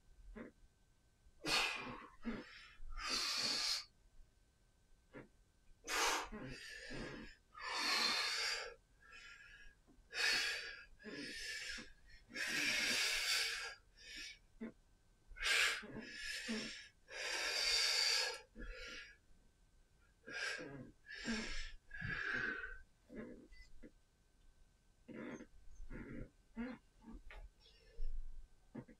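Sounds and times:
man breathing hard: 0:01.4 - 0:03.9, 0:05.9 - 0:14.4, 0:15.4 - 0:19.2, 0:20.2 - 0:22.8.

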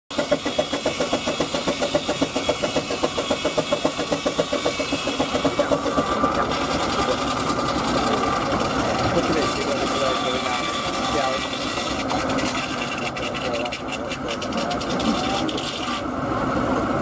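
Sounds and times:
steam engine beat: 0:00.1 - 0:10.0
saw bench whine: 0:00.1 - 0:17.0.

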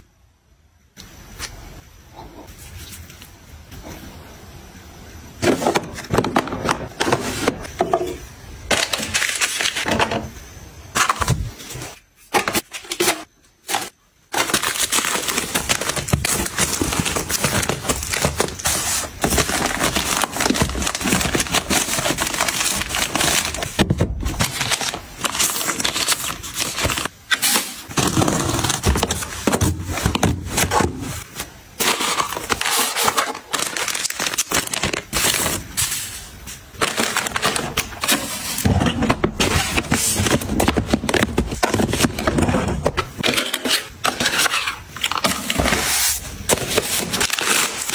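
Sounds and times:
plastic wrappers crinkling: 0:12.4 - 0:47.9.

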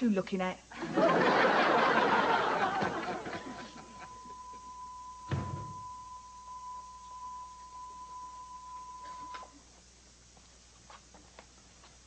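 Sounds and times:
audience laughter: 0:00.8 - 0:04.2
faint high tone: 0:03.5 - 0:09.6
thud: 0:05.3 - 0:06.0.

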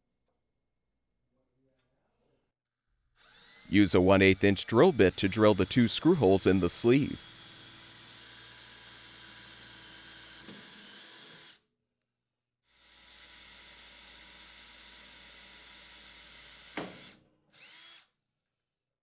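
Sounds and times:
cordless drill drilling: 0:03.2 - 0:11.6, 0:12.8 - 0:18.1.

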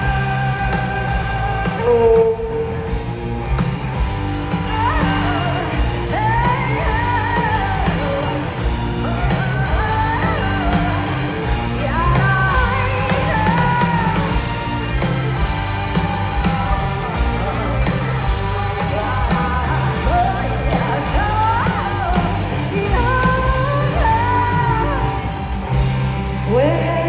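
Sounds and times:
woman singing lead vocal: 0:00.0 - 0:03.0, 0:04.5 - 0:15.0, 0:17.1 - 0:25.3, 0:26.4 - 0:27.0
live rock band over loudspeakers: 0:00.0 - 0:27.0.

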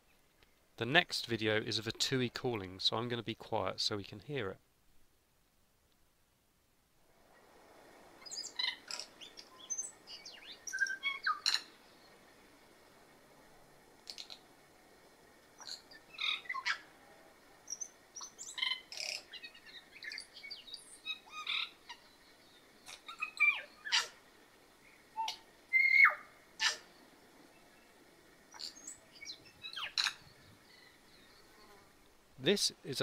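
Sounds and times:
bird singing: 0:08.2 - 0:12.2, 0:15.6 - 0:16.9, 0:17.6 - 0:24.2, 0:24.8 - 0:31.8.

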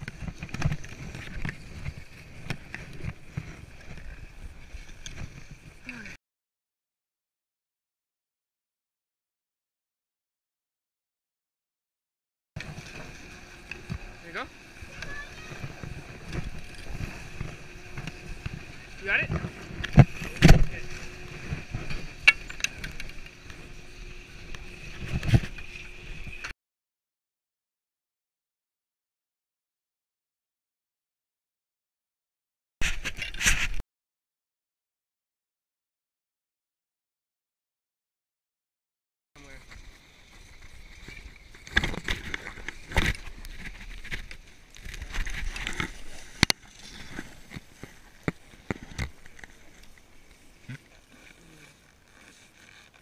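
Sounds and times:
skis scraping over packed snow: 0:00.0 - 0:05.8, 0:12.6 - 0:26.5, 0:39.4 - 0:53.0.

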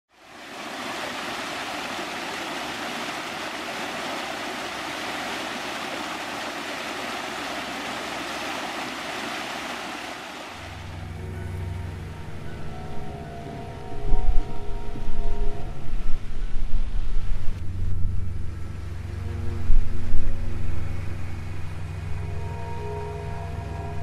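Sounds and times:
low musical drone: 0:10.6 - 0:24.0.

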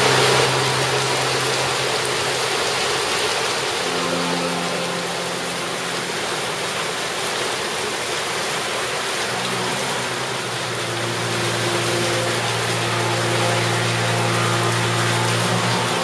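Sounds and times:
heavy rain splashing into water: 0:00.0 - 0:16.0
low steady hum: 0:09.2 - 0:16.0.

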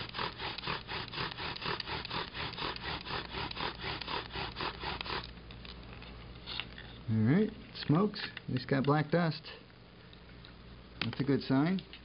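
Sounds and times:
bow drill spindle rasping: 0:00.0 - 0:05.6.

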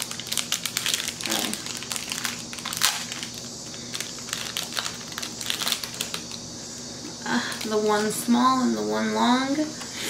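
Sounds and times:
plastic bag crinkling: 0:00.0 - 0:06.5, 0:07.2 - 0:08.2.

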